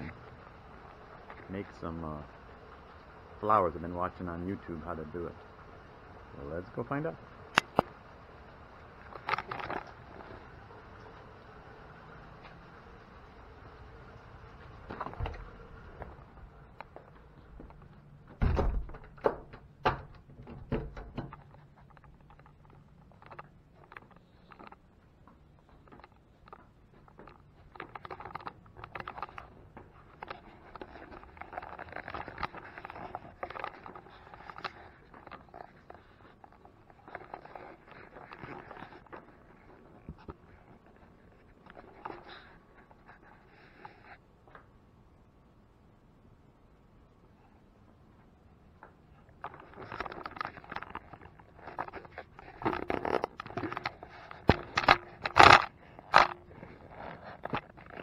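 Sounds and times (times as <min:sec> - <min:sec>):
camera handling noise: 0:49.4 - 0:58.0.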